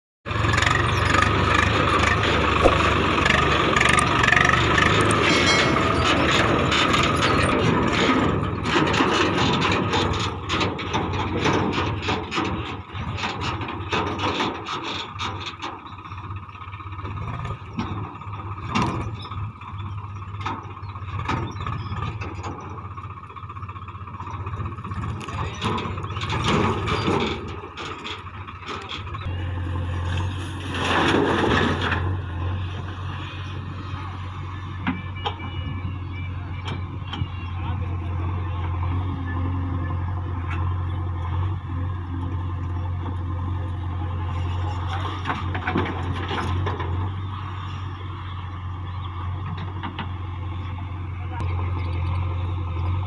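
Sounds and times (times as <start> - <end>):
backhoe diesel engine running: 0.2 - 53.0
tractor diesel engine running: 0.2 - 53.0
bucket knocking and clunking in soil: 2.6 - 3.3.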